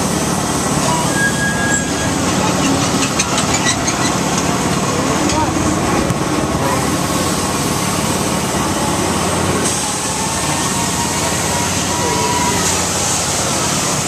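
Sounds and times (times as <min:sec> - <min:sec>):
fairground ride mechanical noise: 0:00.0 - 0:14.0.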